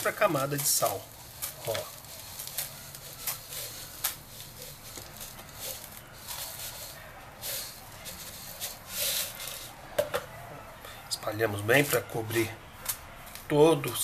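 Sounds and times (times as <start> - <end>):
salt grains pouring into plastic tub: 3.2 - 9.7.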